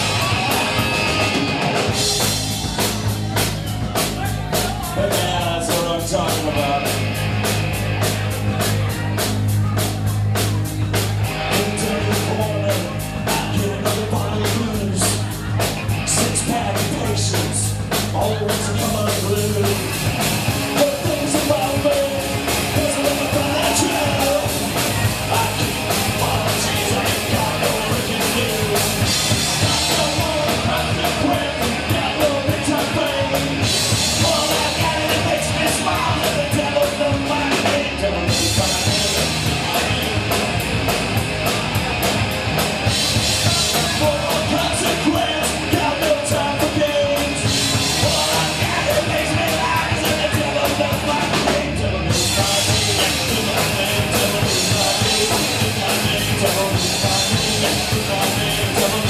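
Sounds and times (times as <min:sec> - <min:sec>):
rock song with singing: 0:00.0 - 0:59.0.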